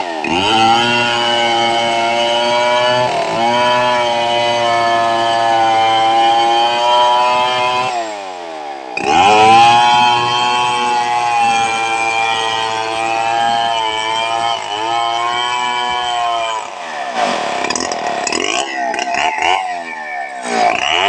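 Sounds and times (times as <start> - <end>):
chainsaw cutting timber: 0.0 - 21.0.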